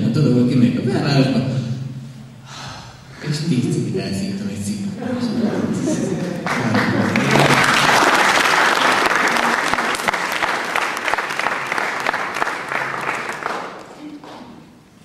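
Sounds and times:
audience applauding: 0:06.2 - 0:14.6.

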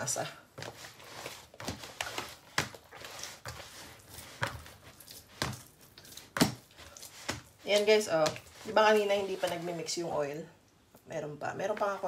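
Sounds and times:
dough kneading squishing slaps: 0:00.6 - 0:09.7.

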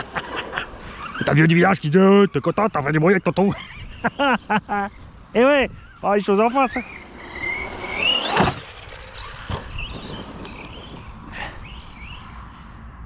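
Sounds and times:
electric motor whining: 0:00.0 - 0:12.8.

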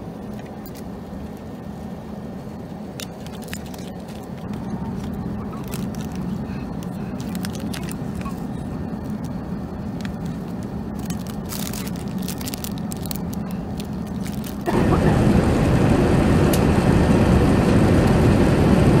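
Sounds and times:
airplane cabin drone: 0:00.0 - 0:19.0
plastic wrapping crackling: 0:02.9 - 0:14.7.

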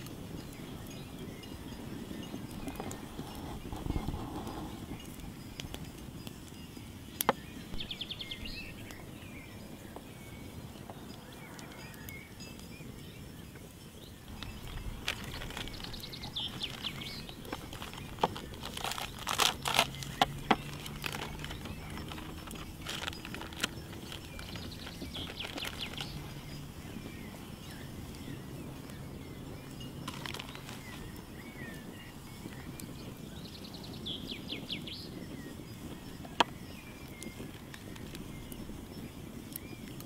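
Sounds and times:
birds chirping: 0:00.0 - 0:40.0
plastic bag crinkling: 0:14.3 - 0:26.4, 0:30.0 - 0:31.1.

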